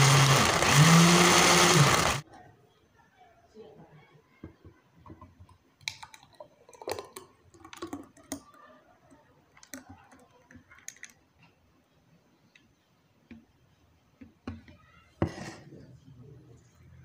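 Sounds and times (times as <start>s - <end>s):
thick drink pouring with wet plops: 5.4s - 8.6s, 9.5s - 11.2s.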